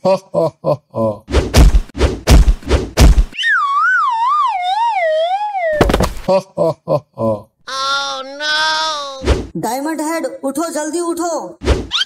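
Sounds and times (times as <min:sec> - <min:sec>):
cartoon punch thumps: 0:01.4 - 0:03.4, 0:05.8 - 0:06.3
wobbling descending whistle: 0:03.4 - 0:05.8.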